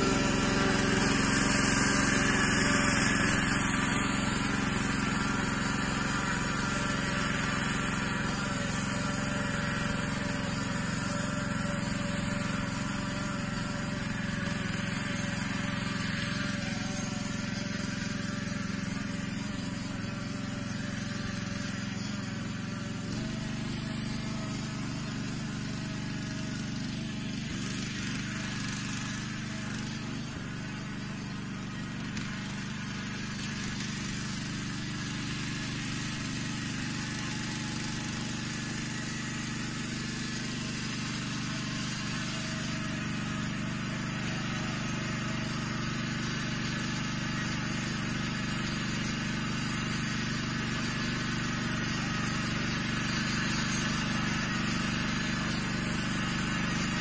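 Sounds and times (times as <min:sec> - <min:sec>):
walking tractor engine running: 0:00.0 - 0:57.0.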